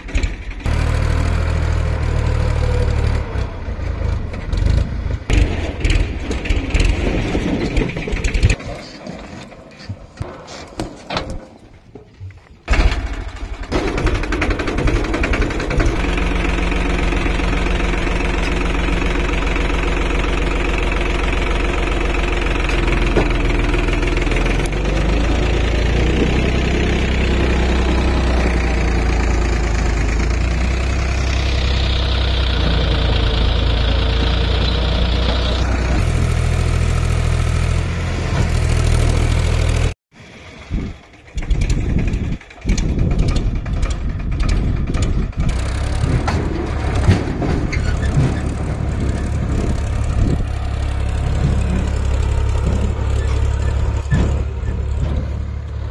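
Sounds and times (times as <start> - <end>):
tractor knocks and rattles: 0.0 - 39.9, 40.7 - 55.9
tractor diesel engine running: 0.0 - 55.9.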